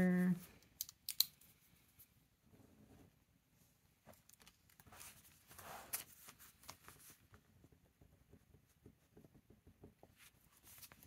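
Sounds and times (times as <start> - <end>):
notebook pages rustling: 4.1 - 7.4, 10.0 - 11.0.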